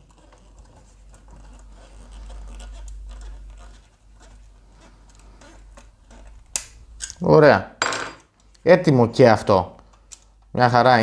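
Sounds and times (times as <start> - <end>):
screwdriver scratching and ticking: 0.0 - 7.2.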